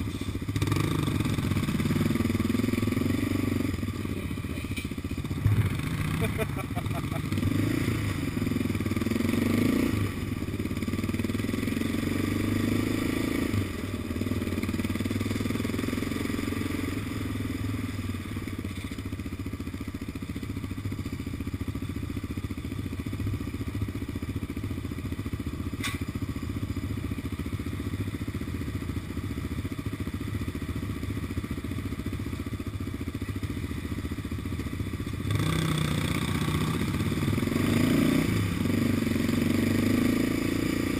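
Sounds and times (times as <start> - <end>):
quad bike engine revving: 0.0 - 18.3, 33.5 - 40.9
sharp click: 25.8 - 26.1.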